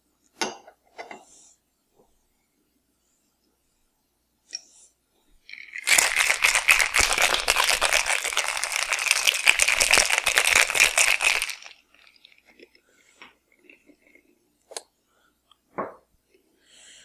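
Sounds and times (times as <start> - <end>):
ice rattling in cocktail shaker: 5.5 - 12.6.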